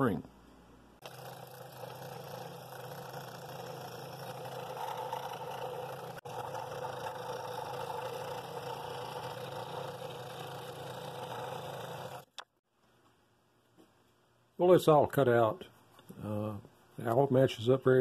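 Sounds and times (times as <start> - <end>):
scroll saw cutting wood: 1.0 - 12.4.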